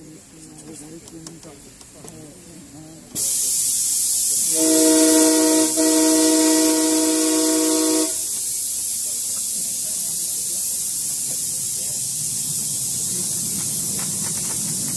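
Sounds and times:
steam hissing: 2.7s - 14.9s
steam whistle blast: 4.4s - 8.4s.

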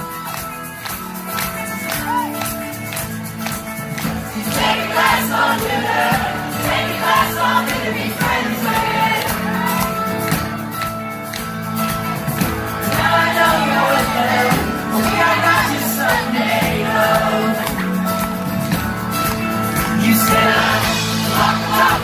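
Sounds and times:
acoustic and electric guitars: 0.0s - 22.0s
drums: 0.0s - 22.0s
person singing: 12.9s - 18.0s, 19.8s - 22.0s.

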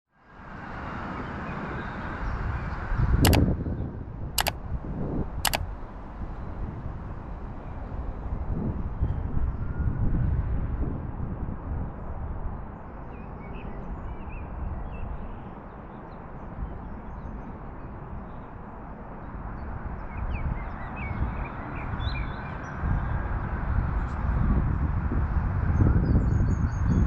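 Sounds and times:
wind on microphone: 6.2s - 12.7s, 20.0s - 27.0s.

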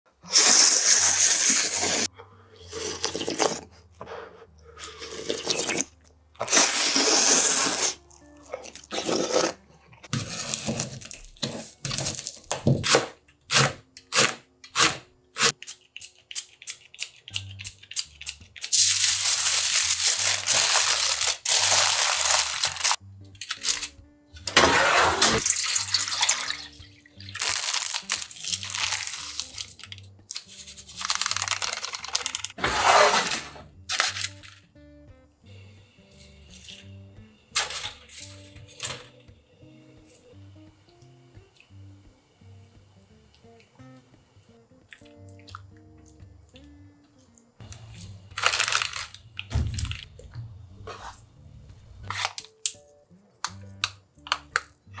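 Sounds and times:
noodles being slurped: 0.2s - 3.8s, 4.8s - 9.6s
quiet background music: 1.7s - 55.0s.

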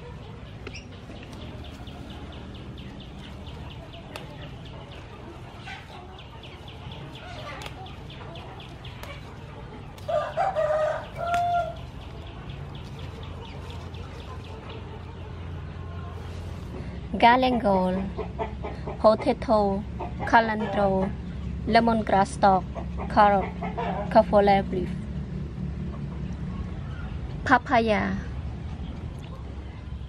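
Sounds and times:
rooster crowing: 10.1s - 11.8s.

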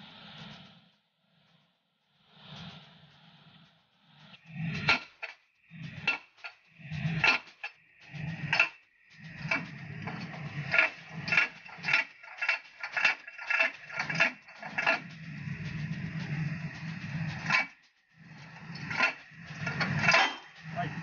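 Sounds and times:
steel bar clanking on metal: 19.7s - 20.6s.

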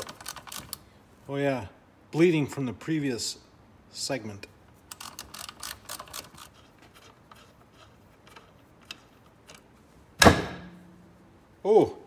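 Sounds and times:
loud metallic bang: 10.2s - 11.1s.

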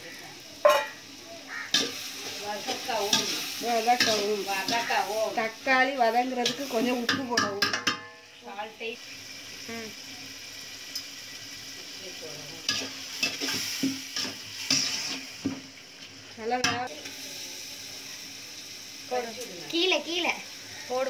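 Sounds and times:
onions and tomatoes sizzling: 0.0s - 21.0s
metal ladle scraping pot: 0.6s - 1.0s, 14.2s - 15.2s.

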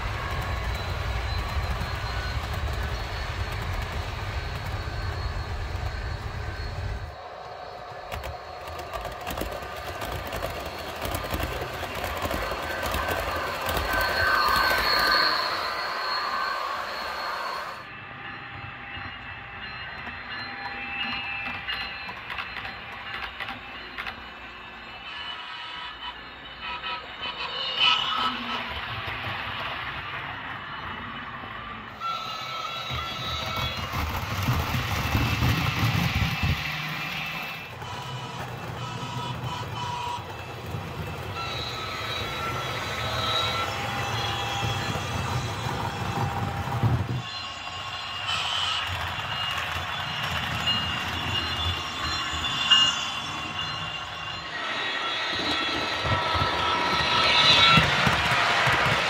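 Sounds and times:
model train running hum: 0.0s - 59.0s
model train wheels clicking: 7.5s - 15.8s.

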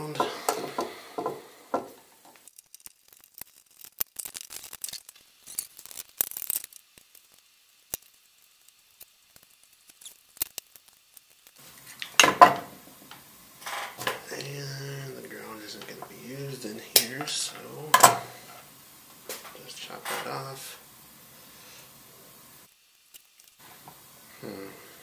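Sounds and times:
electrical wiring clicks and rustles: 2.2s - 12.5s.

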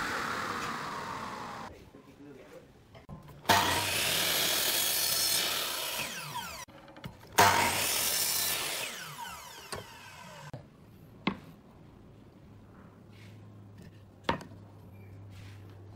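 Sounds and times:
saw blade whine spinning down: 0.0s - 1.7s
miter saw cutting wood: 3.5s - 6.7s, 7.4s - 10.6s.

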